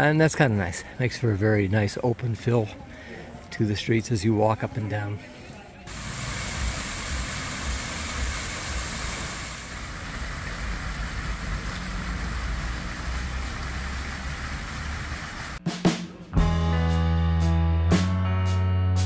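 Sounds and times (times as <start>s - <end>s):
fountain splashing into basin: 5.9s - 15.6s.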